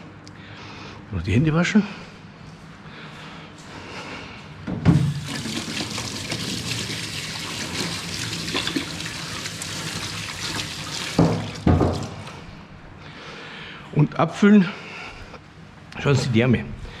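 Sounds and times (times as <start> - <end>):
tap water running into sink: 4.9 - 12.4.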